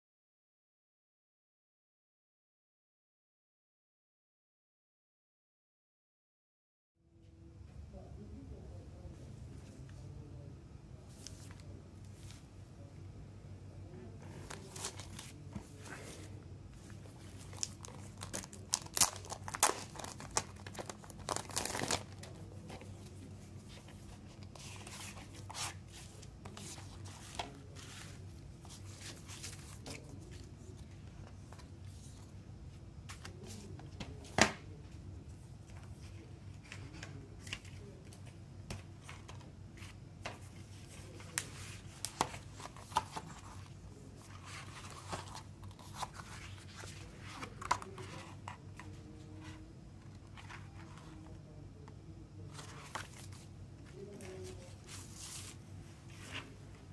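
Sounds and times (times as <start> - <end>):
book pages turning: 14.2 - 32.3, 35.6 - 51.4, 52.5 - 56.7
plastic and paper rustling: 14.3 - 32.3, 35.6 - 51.3.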